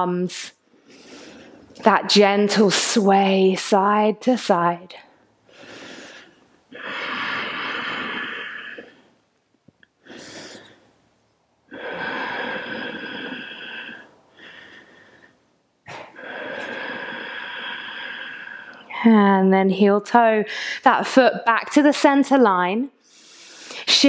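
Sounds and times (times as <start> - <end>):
woman breathing deeply: 0.6 - 1.8, 5.4 - 9.2, 10.0 - 11.0, 11.7 - 18.9, 23.0 - 23.9.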